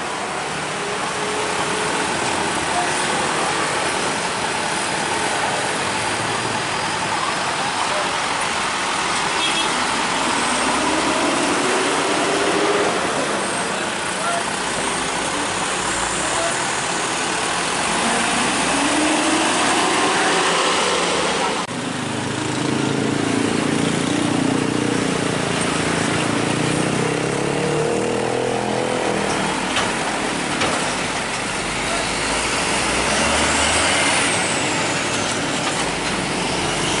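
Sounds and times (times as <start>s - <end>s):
diesel truck engines: 0.0s - 37.0s
tyre and road noise: 0.0s - 37.0s.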